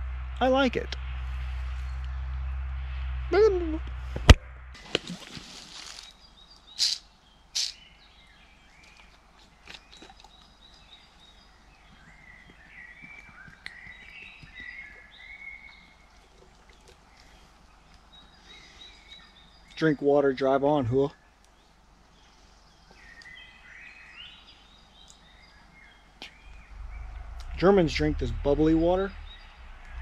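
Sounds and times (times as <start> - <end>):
rustling: 3.9 - 6.2
faint birdsong chirps: 4.8 - 30.0.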